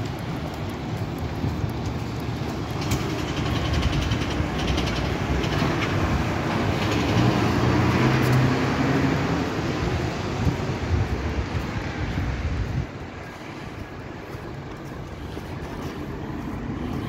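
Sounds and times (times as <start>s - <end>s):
bus engine passing close: 0.0s - 17.0s
town traffic noise: 0.0s - 17.0s.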